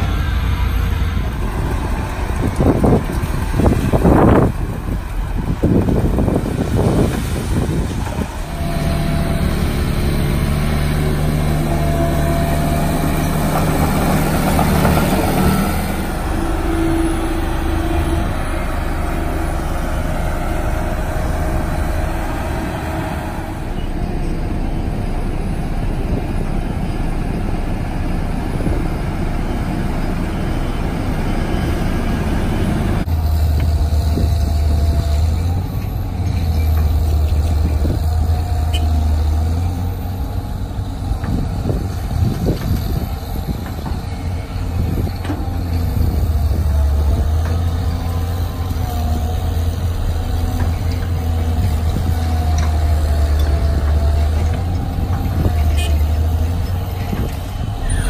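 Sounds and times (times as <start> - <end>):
hydraulic whine: 0.0 - 28.0, 28.6 - 58.0
excavator diesel engine under load: 0.0 - 58.0
roller diesel engine running: 0.0 - 58.0.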